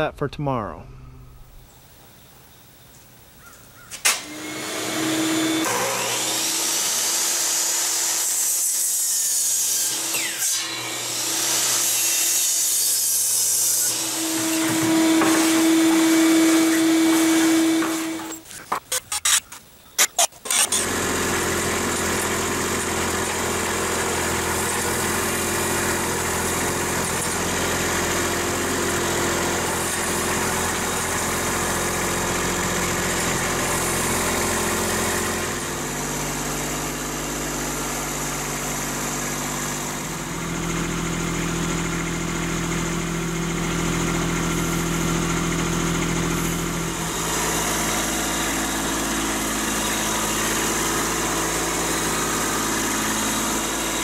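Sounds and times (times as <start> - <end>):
tractor diesel engine running: 20.5 - 54.0.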